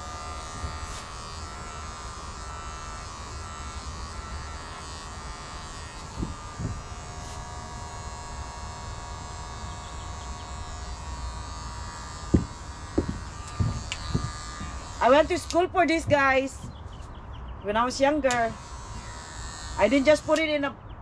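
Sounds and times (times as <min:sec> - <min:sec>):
electric hair clippers buzzing: 0:00.0 - 0:16.5, 0:17.9 - 0:20.7
soft low thumps: 0:12.1 - 0:15.0.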